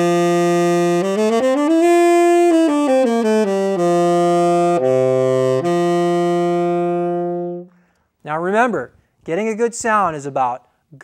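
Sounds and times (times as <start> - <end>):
tenor saxophone playing: 0.0 - 8.0.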